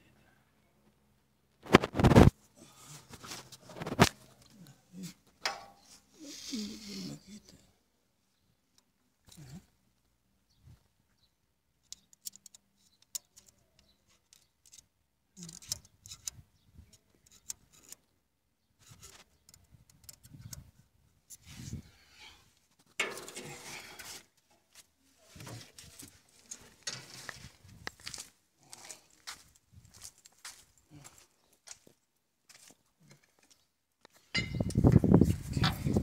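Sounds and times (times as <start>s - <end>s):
rubbing handling noise: 1.6s - 4.4s
metal caliper clicks and scrapes: 15.5s - 18.0s.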